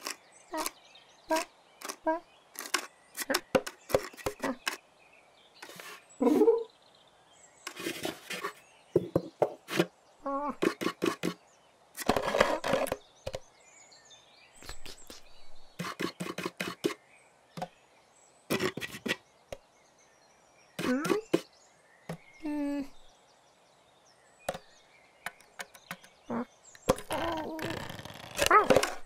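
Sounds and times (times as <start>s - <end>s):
claw scratching and tapping: 0.0s - 4.8s, 7.6s - 9.9s, 10.6s - 11.4s, 12.0s - 13.4s, 14.6s - 17.0s, 18.5s - 19.2s, 20.8s - 21.5s, 24.5s - 26.2s, 26.8s - 29.0s.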